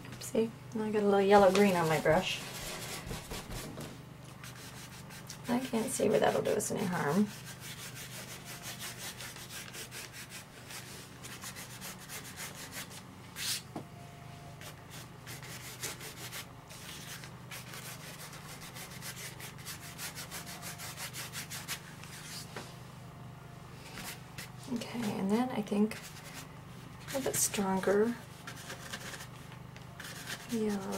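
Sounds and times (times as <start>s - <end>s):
paintbrush scrubbing: 7.2s - 13.6s, 28.3s - 29.4s, 30.0s - 30.9s.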